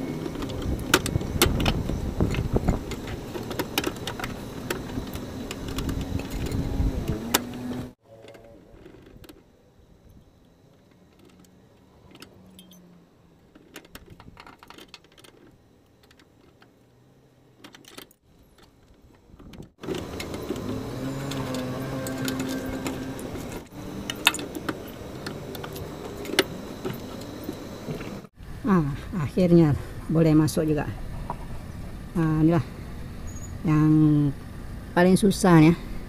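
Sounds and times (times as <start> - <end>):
spanner clinking on fittings: 12.1 - 12.9
loud steady hum: 19.8 - 36.0.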